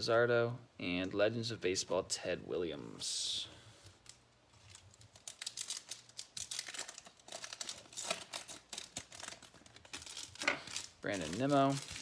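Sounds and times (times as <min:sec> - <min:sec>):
wrapper crinkling and tearing: 0:04.0 - 0:12.0.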